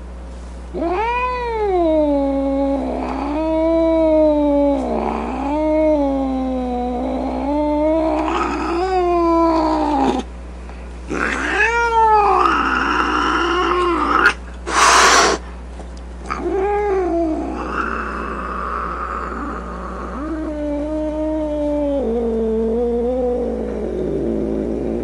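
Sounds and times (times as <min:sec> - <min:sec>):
cat yowling: 0:00.8 - 0:10.3, 0:11.1 - 0:15.4, 0:16.3 - 0:25.0
cat hissing: 0:11.1 - 0:15.5, 0:16.3 - 0:25.0.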